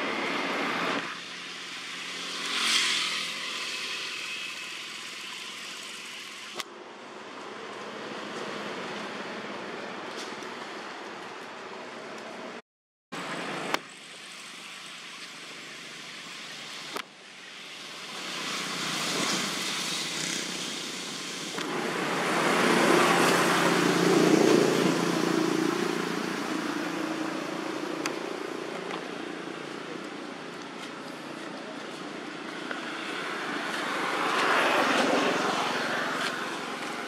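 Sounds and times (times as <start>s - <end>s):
vehicle driving past: 21.7s - 28.5s, 32.8s - 37.0s.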